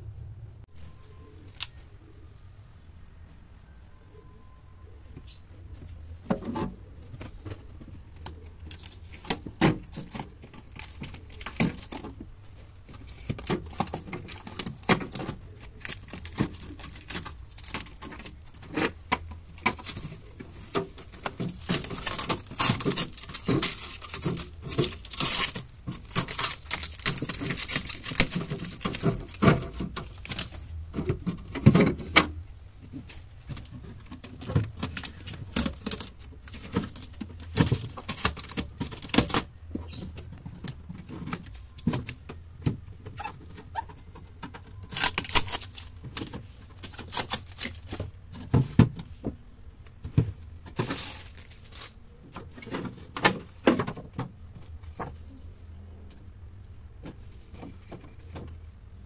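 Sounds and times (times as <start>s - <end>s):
plastic shelves clicking and tapping: 5.1s - 55.4s, 56.0s - 59.0s
plastic film rustling: 6.4s - 31.6s, 33.0s - 39.6s, 43.0s - 48.6s, 50.7s - 53.6s.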